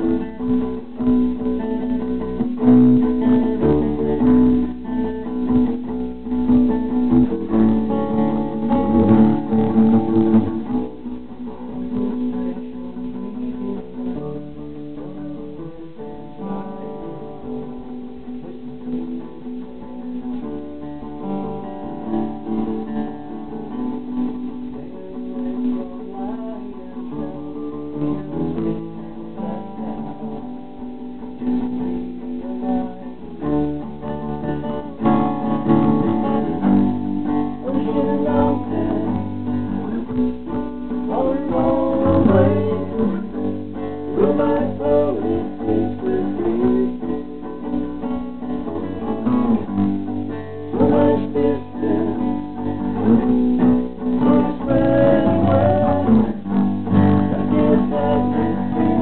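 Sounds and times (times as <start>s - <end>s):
acoustic guitar strumming: 0.0s - 59.0s
man singing: 24.4s - 29.5s, 32.2s - 34.2s, 35.8s - 48.1s, 50.7s - 59.0s.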